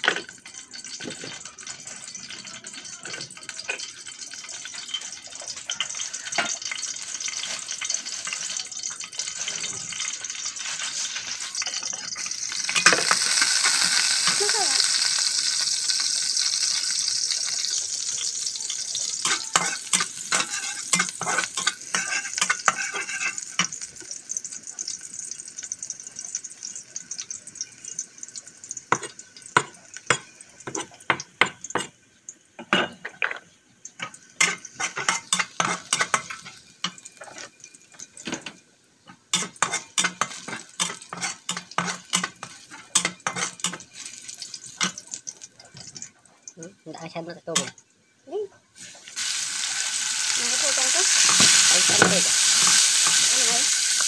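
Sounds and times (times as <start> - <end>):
metal spoon scraping a pan: 0.0 - 24.1, 34.0 - 46.1, 48.8 - 54.0
garlic sizzling in oil: 0.0 - 32.6, 33.3 - 54.0.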